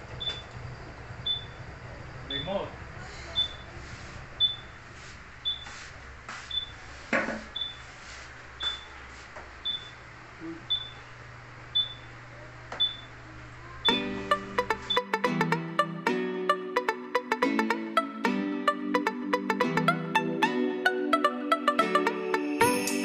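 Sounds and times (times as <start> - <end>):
high electronic alarm beep: 1.3 - 1.6, 3.4 - 3.6, 11.8 - 12.0.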